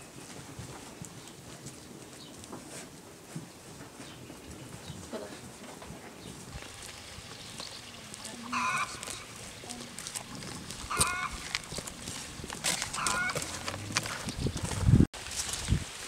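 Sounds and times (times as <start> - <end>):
footsteps on brick path: 0.0 - 16.0
farmyard bird calling: 6.1 - 14.9.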